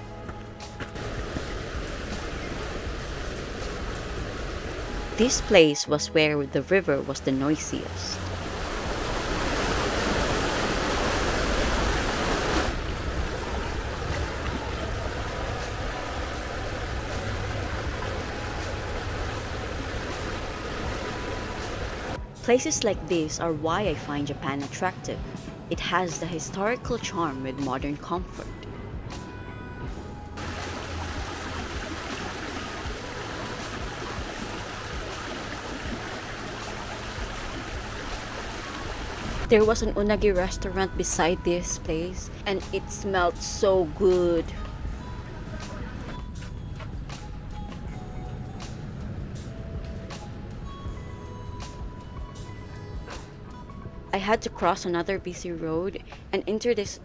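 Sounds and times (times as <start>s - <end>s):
river water rushing: 1.0s - 5.6s, 7.2s - 22.2s, 30.4s - 39.5s.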